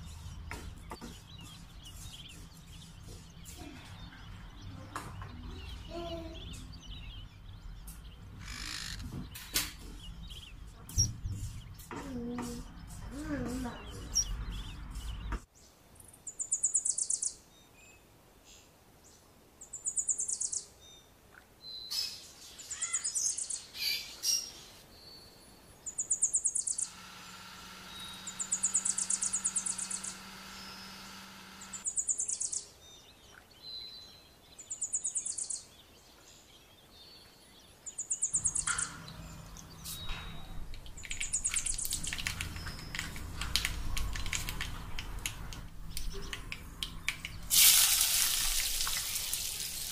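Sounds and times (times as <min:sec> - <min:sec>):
bird calling: 0:25.9 - 0:32.6
mixer grinder motor humming: 0:26.8 - 0:31.8.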